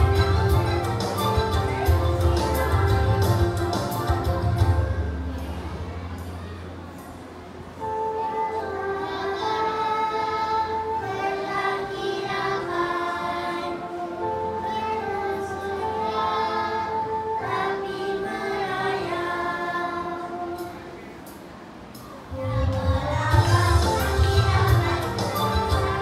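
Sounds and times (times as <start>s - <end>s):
instrumental backing track: 0.0s - 26.0s
children singing: 7.8s - 21.1s, 22.3s - 26.0s.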